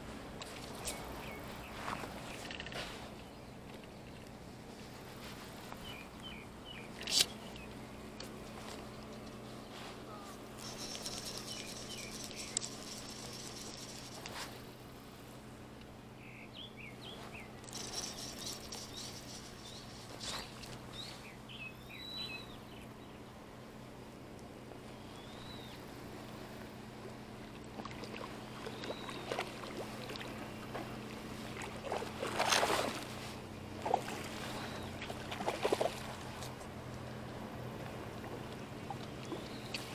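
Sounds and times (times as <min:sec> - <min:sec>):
steady low hum: 0:00.0 - 0:39.9
small birds chirping: 0:05.3 - 0:14.4, 0:16.2 - 0:23.3, 0:24.9 - 0:25.9, 0:28.3 - 0:31.0, 0:34.2 - 0:36.0, 0:38.4 - 0:39.9
fish thrashing in shallow water: 0:27.5 - 0:36.7.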